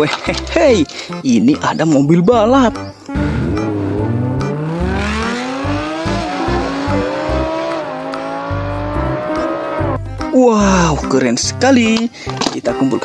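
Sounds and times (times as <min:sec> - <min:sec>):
cars accelerating hard: 0:03.1 - 0:10.0.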